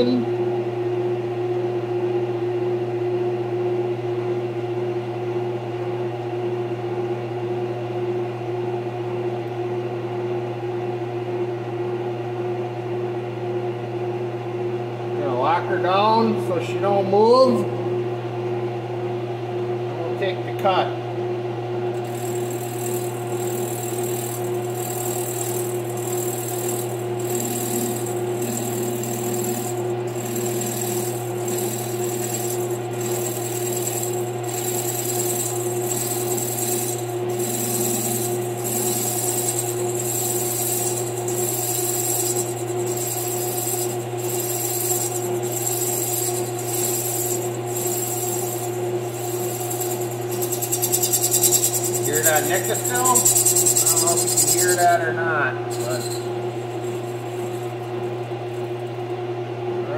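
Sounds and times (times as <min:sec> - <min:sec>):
metal lathe humming: 0:22.0 - 0:58.9.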